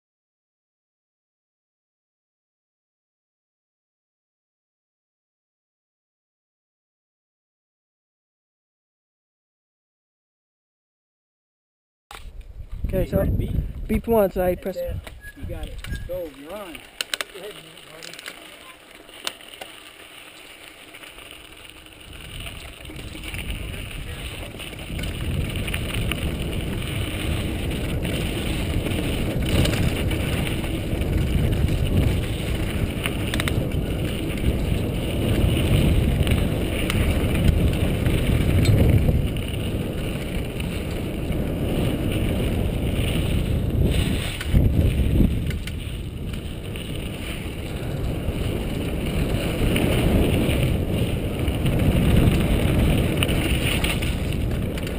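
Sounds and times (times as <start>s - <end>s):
bike tyre and trail noise: 12.1s - 54.9s
wind rumbling on camera: 12.1s - 54.9s
bike knocks and rattles: 15.0s - 54.9s.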